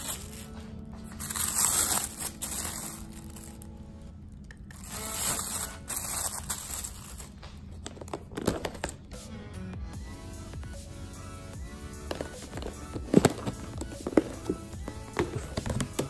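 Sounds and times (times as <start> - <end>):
crinkling plastic rustle: 0.0 - 3.7, 4.7 - 9.0.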